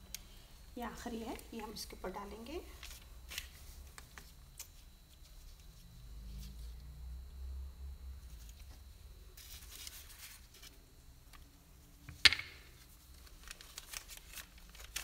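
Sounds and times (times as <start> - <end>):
parchment paper rustling: 2.6 - 6.7, 9.4 - 11.4, 12.7 - 15.0.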